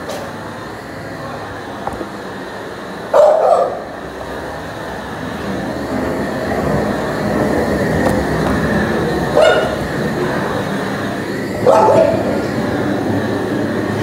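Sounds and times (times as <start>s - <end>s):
steady background noise: 0.0s - 14.0s
dog barking: 3.1s - 3.9s, 9.4s - 9.8s, 11.6s - 12.3s.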